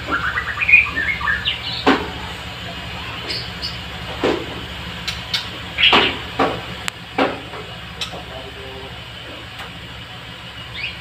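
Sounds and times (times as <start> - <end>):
songbirds chirping: 0.0 - 9.2
sharp knocks: 1.8 - 2.2, 5.8 - 7.7.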